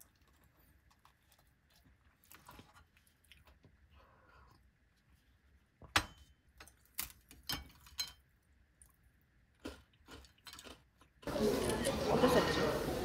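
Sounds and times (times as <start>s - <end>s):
restaurant hubbub: 11.2s - 13.0s.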